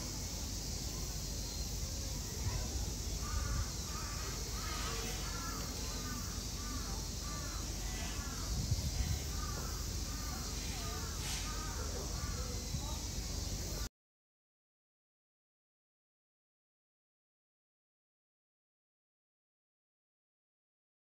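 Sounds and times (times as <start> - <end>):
steady high-pitched hiss: 0.0 - 13.9
crow cawing: 3.2 - 8.5, 9.3 - 12.5.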